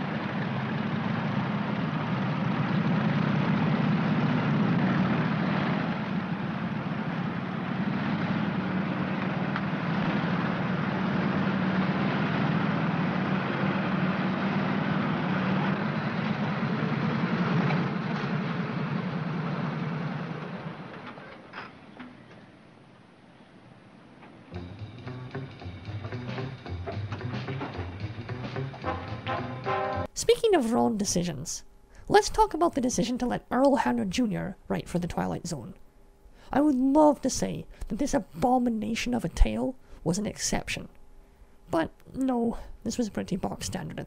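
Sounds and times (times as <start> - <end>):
motorcycle engines droning: 0.0 - 30.1.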